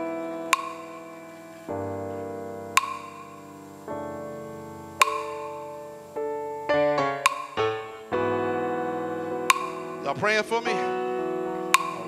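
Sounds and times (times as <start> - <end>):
keyboard chords: 0.0 - 12.0
sharp percussive click: 5.0 - 5.6.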